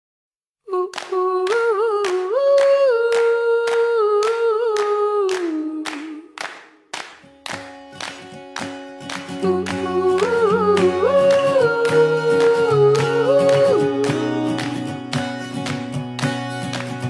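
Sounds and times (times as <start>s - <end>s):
steady clapping beat: 0.9s - 17.0s
person humming a melody: 9.4s - 14.9s.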